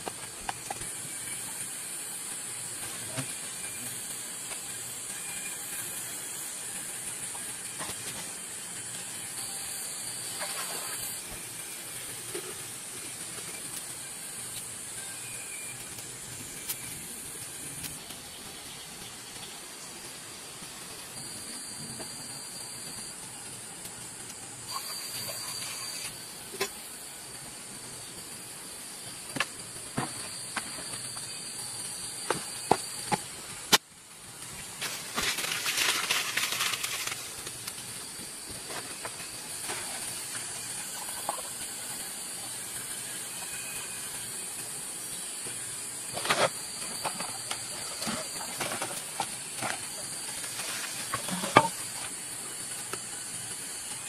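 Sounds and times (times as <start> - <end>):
bamboo tube hissing over fire: 0.0 - 54.0
fire crackling: 0.0 - 54.0.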